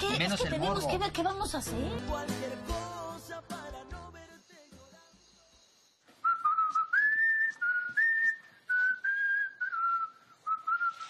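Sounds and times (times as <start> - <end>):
person whistling a tune: 6.2 - 11.0.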